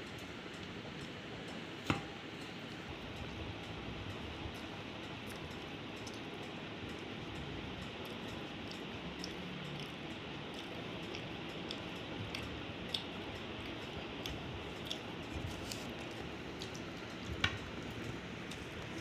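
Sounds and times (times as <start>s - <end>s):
chewing with wet mouth clicks: 4.6s - 19.0s
fingers squishing rice and curry: 7.8s - 19.0s.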